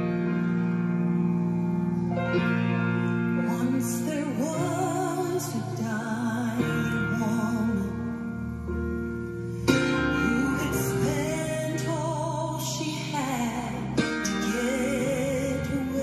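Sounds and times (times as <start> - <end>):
grand piano accompaniment: 0.0 - 16.0
woman singing with vibrato: 3.4 - 8.2, 10.1 - 16.0.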